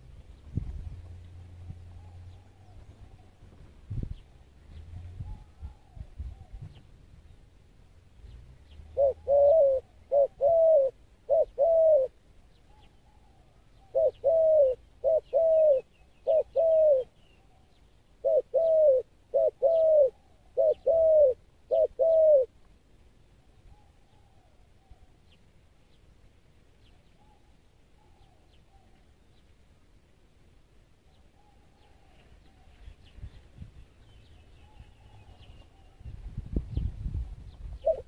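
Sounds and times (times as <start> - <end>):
dove cooing: 8.8 - 22.6, 37.7 - 38.0.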